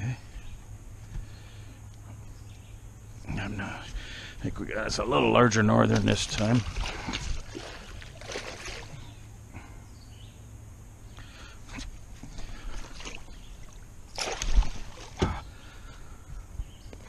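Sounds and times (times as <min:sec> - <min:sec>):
fish splashing in a net: 0:05.9 - 0:09.0, 0:12.7 - 0:15.3.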